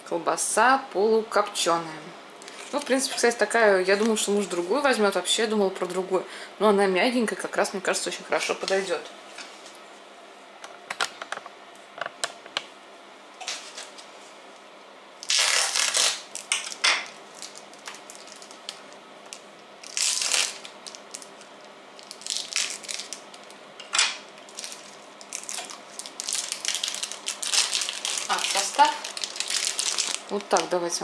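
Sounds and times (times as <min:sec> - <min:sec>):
plastic wrapping crinkling: 0:02.4 - 0:04.9, 0:13.4 - 0:14.1, 0:15.2 - 0:31.0.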